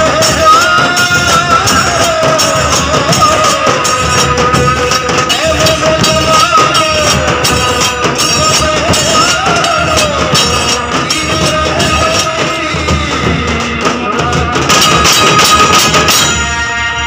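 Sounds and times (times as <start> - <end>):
large drums beaten fast: 0.0 - 16.6
wavering pitched tone: 0.3 - 5.2.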